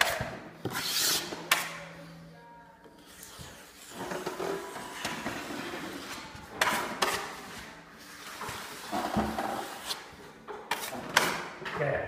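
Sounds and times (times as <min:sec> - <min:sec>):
taping knife scraping compound: 0:00.0 - 0:01.8.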